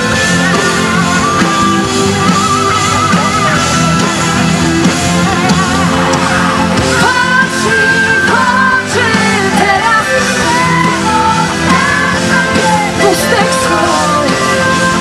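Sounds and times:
pop-rock band playing: 0:00.0 - 0:15.0
woman singing: 0:06.9 - 0:15.0.

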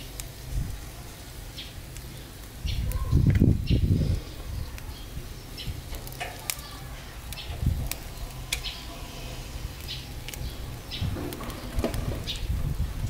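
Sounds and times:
grill crackling and popping: 0:00.0 - 0:13.0
birds chirping: 0:00.7 - 0:13.0.

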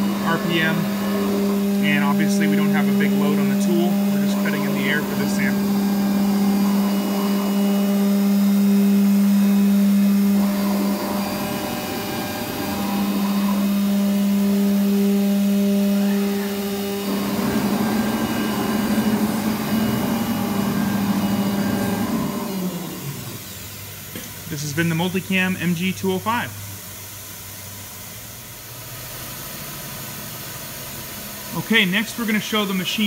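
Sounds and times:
router spindle whining: 0:00.0 - 0:24.2
rough noisy machine running: 0:00.0 - 0:26.6.

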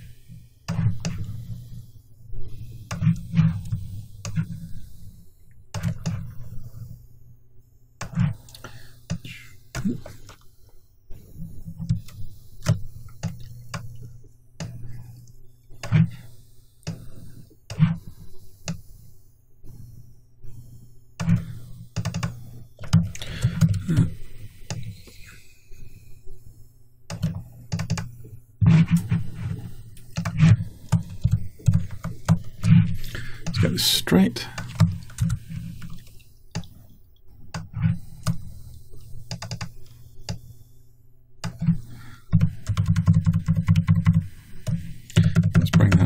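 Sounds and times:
mouse and keyboard clicks: 0:21.2 - 0:23.8, 0:27.1 - 0:32.8, 0:37.5 - 0:40.4, 0:41.4 - 0:46.0.

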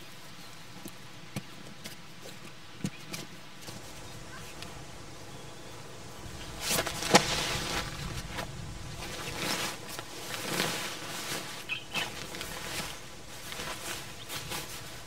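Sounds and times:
nylon fabric rustling: 0:03.6 - 0:15.0.

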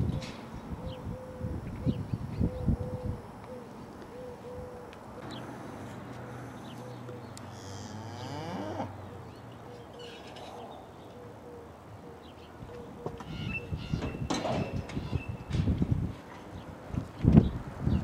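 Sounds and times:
cow mooing: 0:07.5 - 0:09.0.

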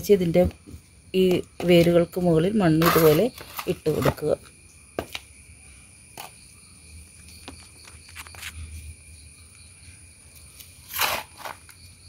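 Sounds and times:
soil rustling: 0:10.4 - 0:11.9
brushing scrape on pot: 0:10.9 - 0:11.6.

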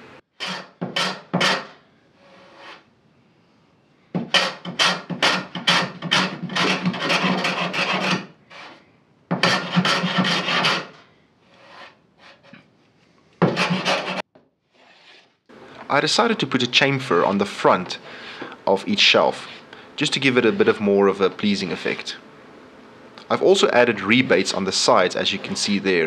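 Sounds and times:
hand plane shaving wood: 0:04.4 - 0:08.8, 0:09.4 - 0:11.0, 0:13.4 - 0:14.2.

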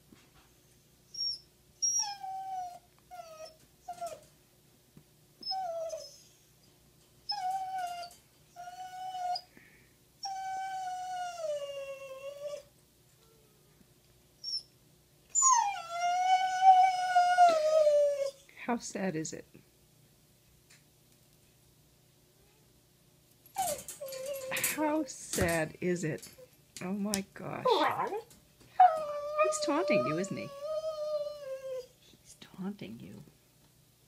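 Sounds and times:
dog whining and howling: 0:01.1 - 0:04.3, 0:05.4 - 0:06.4, 0:07.3 - 0:09.5, 0:10.2 - 0:12.7, 0:14.4 - 0:14.7, 0:15.3 - 0:18.4, 0:23.5 - 0:24.6, 0:28.8 - 0:32.0.

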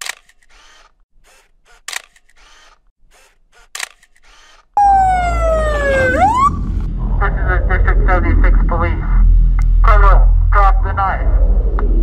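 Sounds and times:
camera shutter clicks: 0:00.0 - 0:04.6
police siren wailing: 0:04.8 - 0:08.2.

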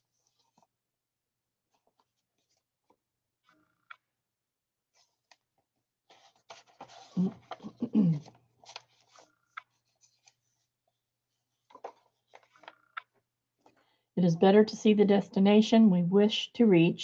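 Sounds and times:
pages rustling: 0:00.0 - 0:00.8, 0:01.6 - 0:04.0, 0:04.9 - 0:13.9.

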